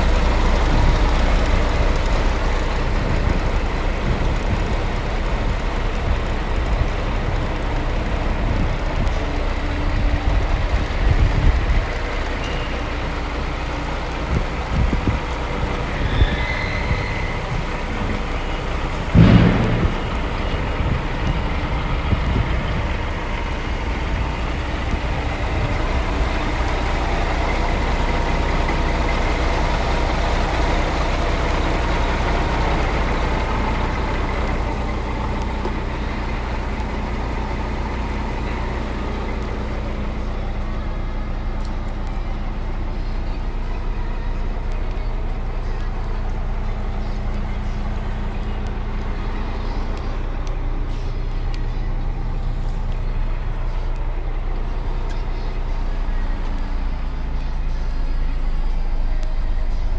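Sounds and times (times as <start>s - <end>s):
diesel truck engine idling: 0.0s - 59.9s
loud thump: 19.1s - 20.3s.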